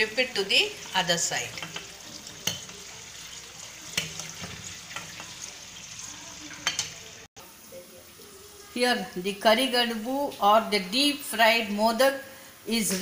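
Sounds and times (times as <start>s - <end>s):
oil sizzling: 0.0s - 13.0s
metal spoon clicking on pan: 1.5s - 2.8s, 4.0s - 5.4s, 6.6s - 7.0s.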